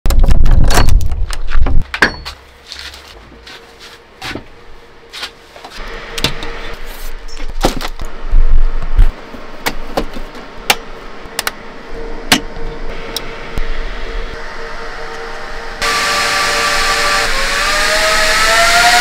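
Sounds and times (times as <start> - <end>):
loud low rumbling: 11.1 - 19.0.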